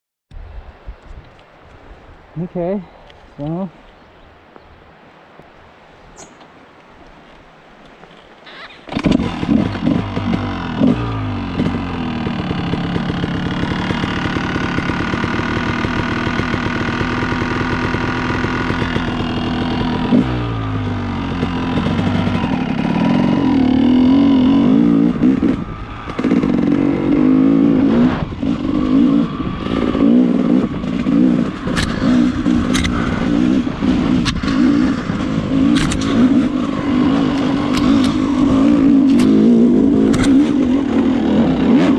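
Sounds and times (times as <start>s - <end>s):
dirt bike engine revving: 8.8s - 41.9s
sharp clicks: 31.6s - 33.0s, 35.7s - 36.3s, 40.0s - 40.5s.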